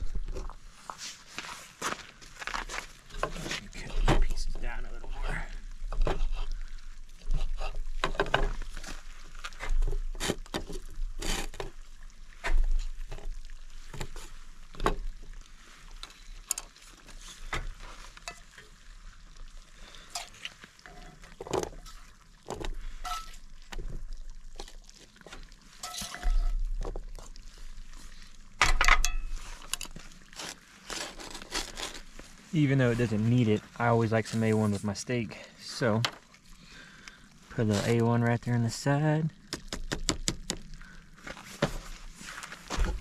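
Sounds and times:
food scraped from skillet: 0:25.1 - 0:26.6.

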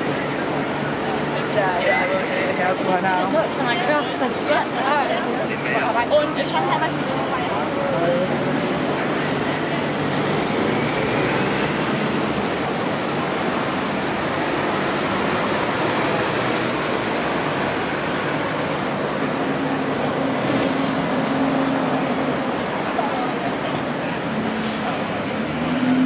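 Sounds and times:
traffic noise: 0:00.0 - 0:26.0.

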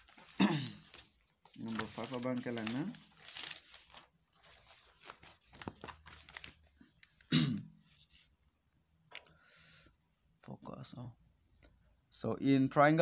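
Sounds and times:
paper rustling: 0:00.0 - 0:08.3.

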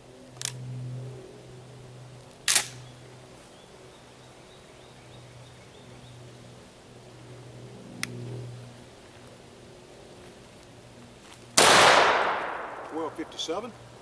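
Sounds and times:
shotgun firing: 0:11.6 - 0:13.4.

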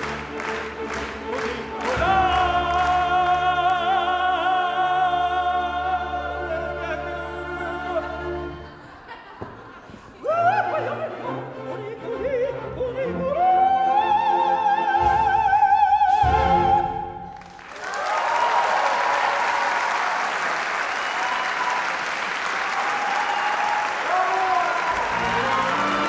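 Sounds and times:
audience applauding: 0:00.0 - 0:03.7, 0:17.3 - 0:26.0
soprano singing with orchestra: 0:01.0 - 0:08.9, 0:10.2 - 0:17.4.

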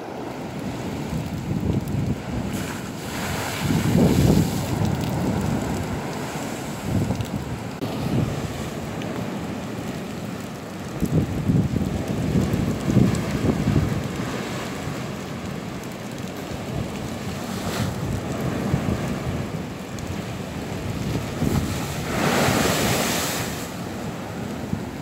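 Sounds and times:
wind on microphone: 0:00.0 - 0:09.0, 0:10.8 - 0:15.0, 0:16.5 - 0:25.0
rush of water: 0:00.0 - 0:25.0
sea waves breaking against a wall: 0:00.0 - 0:25.0.

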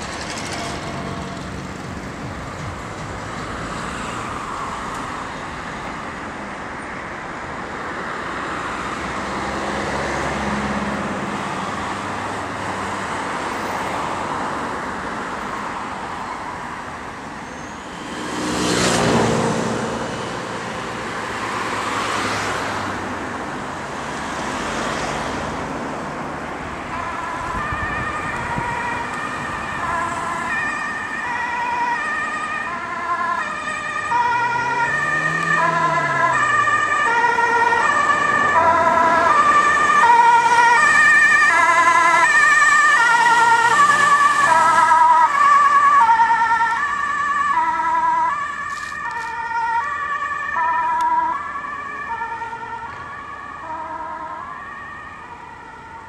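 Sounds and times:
ambulance two-tone siren: 0:00.0 - 0:02.8, 0:26.6 - 0:56.0
traffic noise: 0:00.0 - 0:56.0
vehicle passing by: 0:08.3 - 0:15.4, 0:17.9 - 0:56.0.

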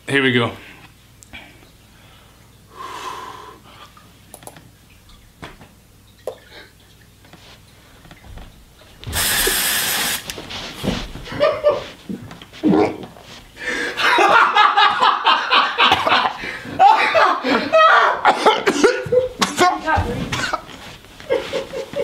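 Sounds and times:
man breathing quietly: 0:00.8 - 0:04.0, 0:13.6 - 0:14.0
man coughing forcefully: 0:15.8 - 0:19.5, 0:20.3 - 0:20.7
spluttering coughs and gasps: 0:18.2 - 0:19.6, 0:20.2 - 0:20.8.

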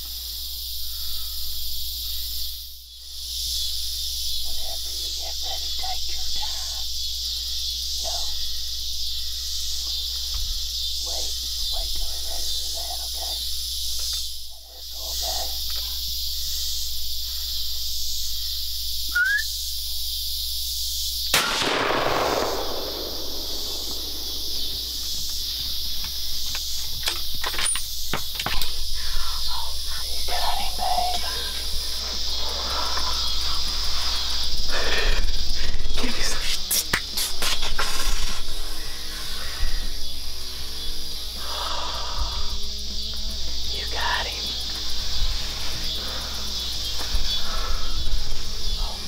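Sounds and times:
crickets and insects chirping: 0:00.0 - 0:49.0
gunshot echoing: 0:21.3 - 0:25.8.

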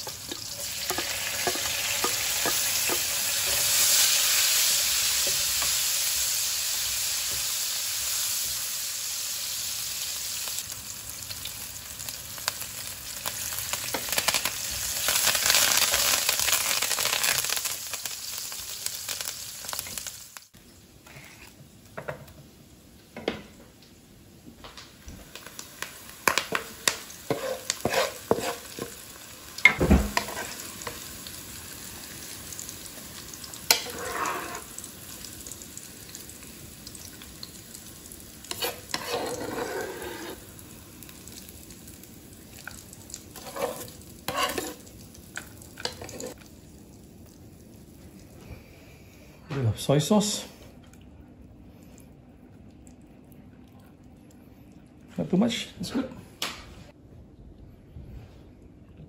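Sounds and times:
food sizzling in hot oil: 0:00.0 - 0:20.6, 0:24.7 - 0:48.3
spatula knocking and scraping a pan: 0:00.3 - 0:03.7, 0:26.3 - 0:29.0, 0:29.6 - 0:31.0, 0:33.7 - 0:34.7, 0:38.5 - 0:40.4, 0:43.4 - 0:44.8.

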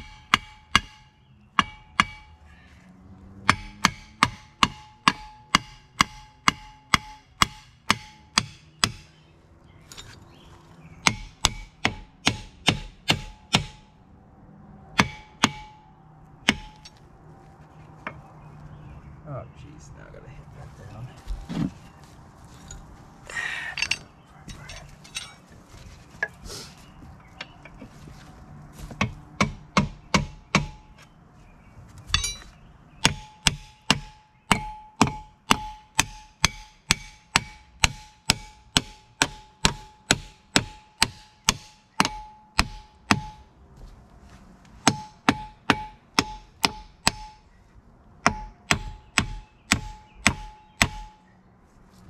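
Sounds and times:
hammer striking metal: 0:00.0 - 0:02.4, 0:03.4 - 0:09.2, 0:11.0 - 0:14.0, 0:14.9 - 0:16.9, 0:29.0 - 0:31.0, 0:32.1 - 0:43.5, 0:44.8 - 0:47.5, 0:48.2 - 0:51.2.

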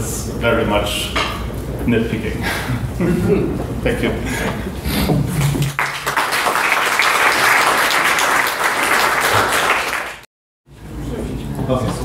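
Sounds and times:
audience applauding: 0:05.3 - 0:10.3.

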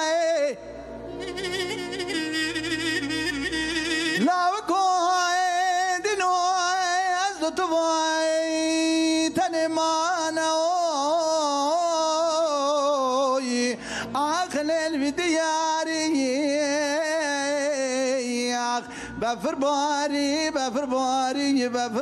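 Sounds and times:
man singing unaccompanied: 0:00.0 - 0:22.0
singer breathing: 0:13.8 - 0:14.2, 0:18.8 - 0:19.2.

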